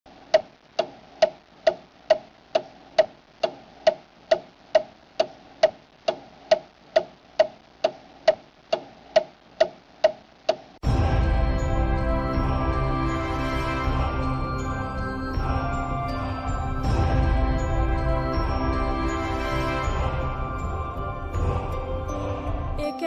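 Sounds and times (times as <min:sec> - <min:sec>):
clock ticking: 0:00.1 - 0:10.8.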